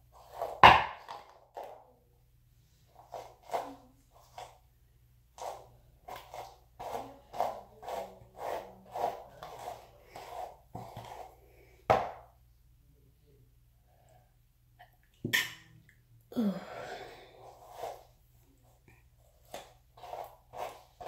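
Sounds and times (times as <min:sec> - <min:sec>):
hairbrush scraping through hair: 0:03.0 - 0:04.5, 0:05.4 - 0:11.4, 0:17.4 - 0:18.1, 0:19.4 - 0:21.0.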